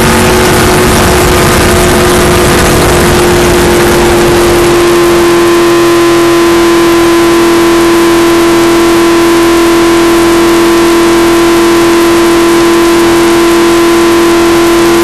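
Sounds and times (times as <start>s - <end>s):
wind and road noise: 0.0s - 5.6s
race car engine drone: 0.0s - 15.0s.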